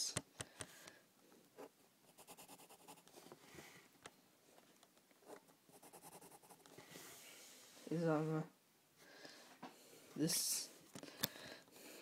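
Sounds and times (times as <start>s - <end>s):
pencil scratching on paper: 1.6s - 3.1s, 5.3s - 6.7s.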